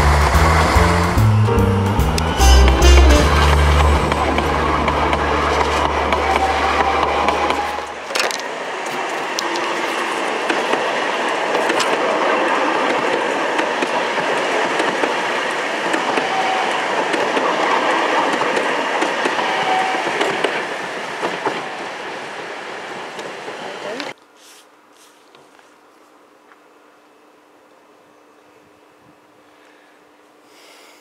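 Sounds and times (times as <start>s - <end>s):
tram wheels rumbling on rail: 0.0s - 24.2s.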